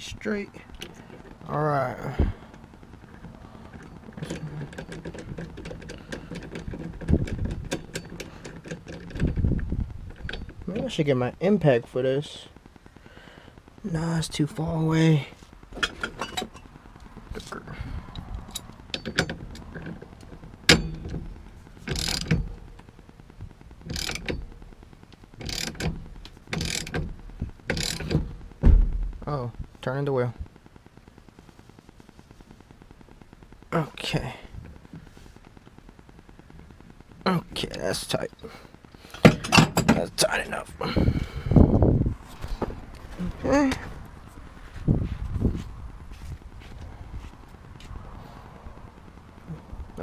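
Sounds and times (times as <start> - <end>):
ratchet wrench clicking: 21.8 - 22.9, 23.8 - 24.5, 25.1 - 27.1, 27.7 - 28.2
heavy thump: 28.1 - 29.2
dull knocks: 28.2 - 29.1.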